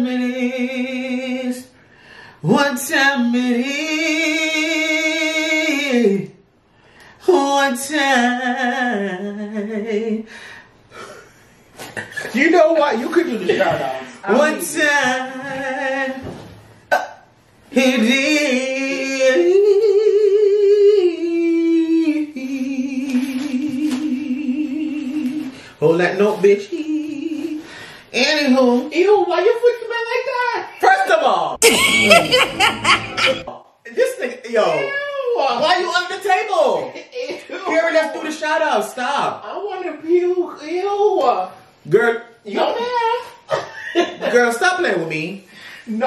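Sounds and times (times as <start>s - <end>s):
man singing unaccompanied: 2.4s - 6.4s, 13.7s - 16.4s, 17.7s - 25.5s.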